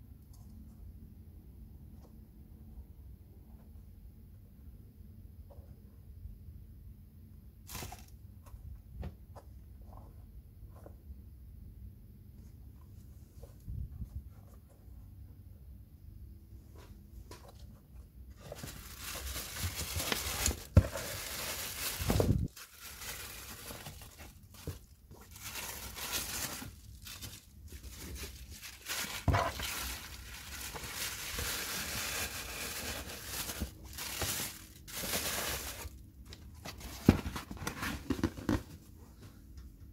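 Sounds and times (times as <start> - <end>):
tissue paper rustling: 18.3 - 36.0.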